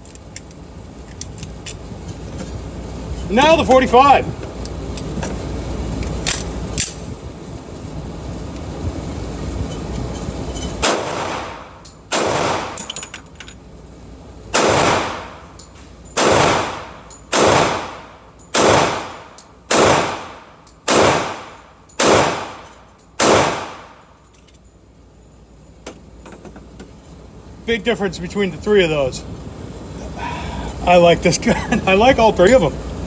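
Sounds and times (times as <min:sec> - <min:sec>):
pistol shots with echo: 0:10.8 - 0:12.8, 0:14.5 - 0:15.4, 0:16.2 - 0:22.6, 0:23.2 - 0:23.9.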